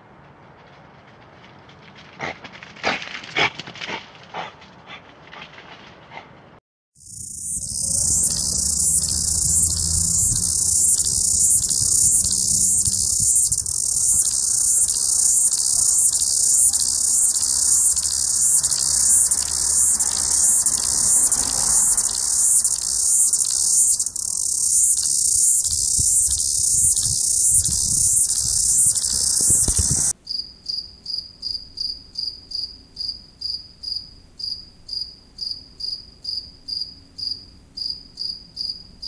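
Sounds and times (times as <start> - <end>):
cicada buzzing: 7.0 - 30.2.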